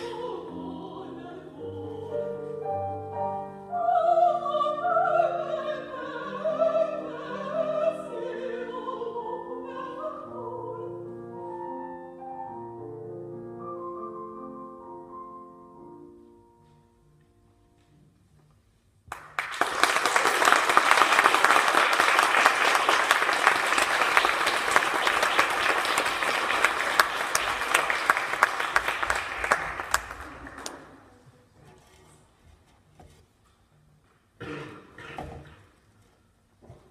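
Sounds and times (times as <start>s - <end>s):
audience applause: 19.1s - 31.0s.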